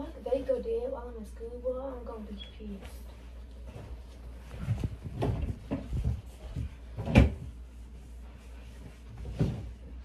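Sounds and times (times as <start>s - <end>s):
soft bumps: 2.7s - 10.0s.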